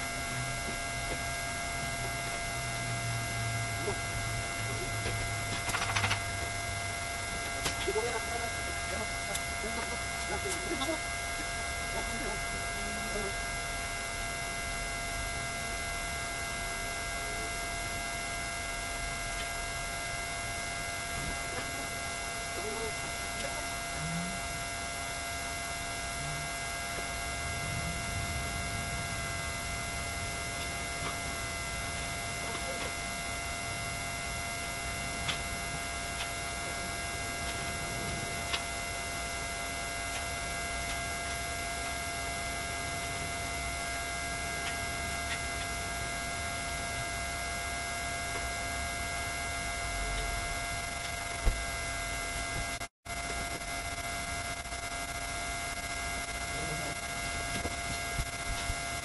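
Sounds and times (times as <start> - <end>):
high electrical hum: 0.0 - 59.0.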